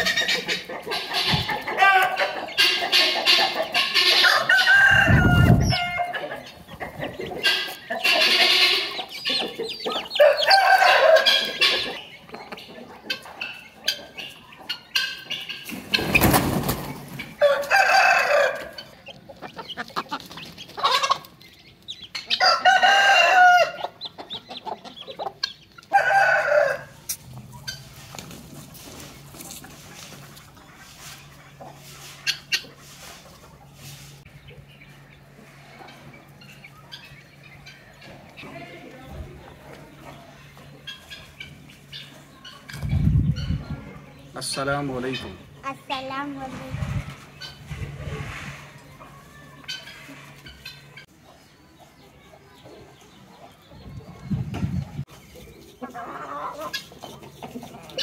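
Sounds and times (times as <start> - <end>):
chickens clucking: 0.0 - 58.0
rooster crowing: 1.8 - 2.4, 4.0 - 6.3, 10.0 - 11.9, 17.4 - 18.9, 22.4 - 23.9, 25.9 - 27.0.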